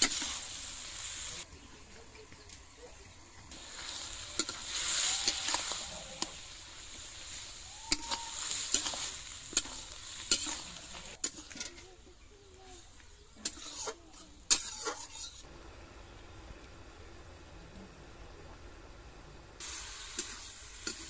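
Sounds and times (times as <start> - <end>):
food sizzling in wok: 0.0 - 1.6, 2.6 - 17.4, 18.2 - 21.0
metal spatula scraping and knocking: 8.0 - 12.0, 13.4 - 15.4.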